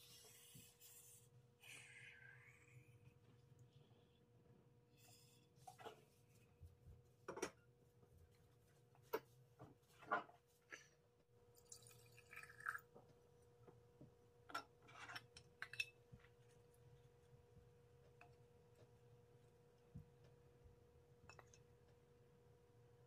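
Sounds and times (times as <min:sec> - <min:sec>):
liquid pouring into glass: 0:11.6 - 0:12.9.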